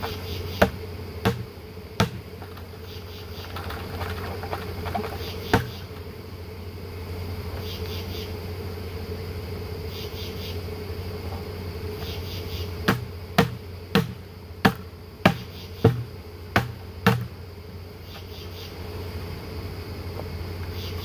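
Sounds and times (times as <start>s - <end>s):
bees buzzing: 0.0s - 21.0s
knocks on plastic bucket: 0.6s - 2.6s, 3.6s - 5.8s, 12.9s - 17.3s.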